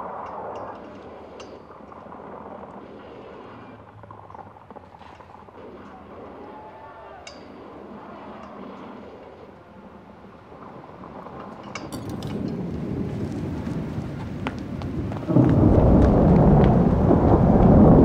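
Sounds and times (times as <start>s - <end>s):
heavy rain: 0.0s - 18.0s
thunder rumble: 0.0s - 18.0s
light clinks: 7.2s - 7.6s, 11.4s - 12.7s.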